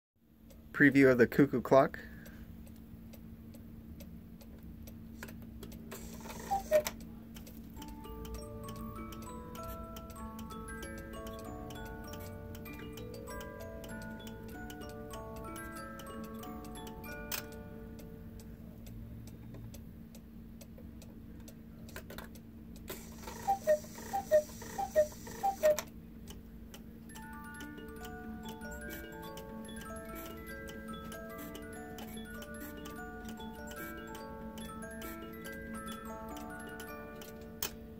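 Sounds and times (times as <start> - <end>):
clock ticking: 0.4 - 37.8
cuckoo clock calls: 5.9 - 18.1, 22.8 - 25.9, 27.1 - 37.8.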